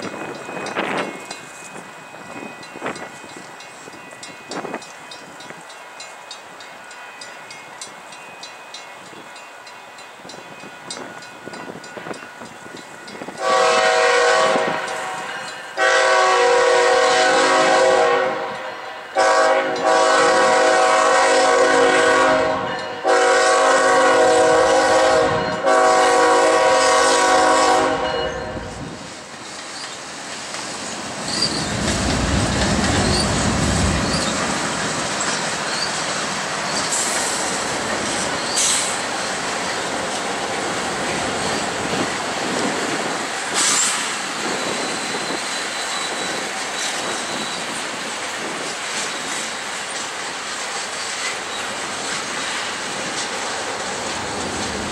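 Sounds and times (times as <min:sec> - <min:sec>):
train rumbling past: 0:00.0 - 0:54.9
locomotive horn blasts: 0:13.4 - 0:28.8.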